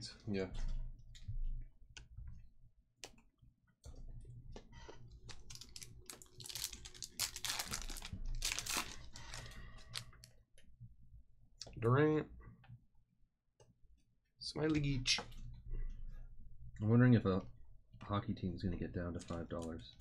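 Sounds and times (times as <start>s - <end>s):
foil wrapper crinkling and tearing: 5.3s - 10.3s.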